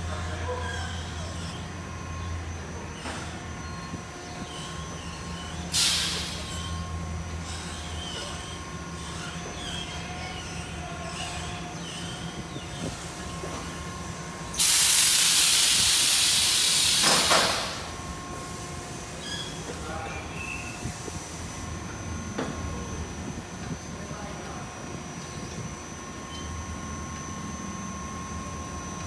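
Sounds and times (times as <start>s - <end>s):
car wash machinery humming: 0.0s - 29.0s
hiss: 5.7s - 6.5s, 14.5s - 18.6s.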